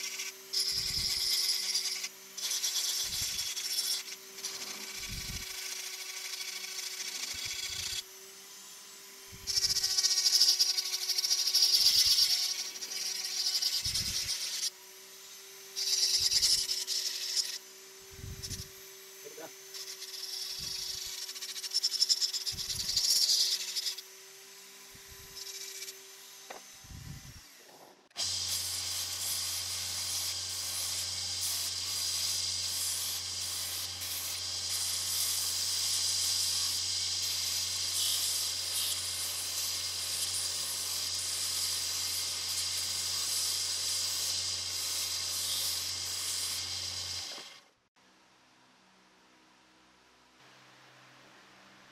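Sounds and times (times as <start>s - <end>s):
rotary tool grinding wood: 0.0s - 47.8s.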